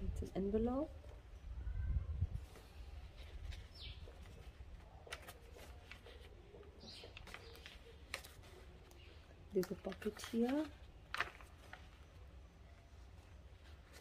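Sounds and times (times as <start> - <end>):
paper pages rustling: 2.4 - 14.0
light taps of paper: 3.4 - 11.9.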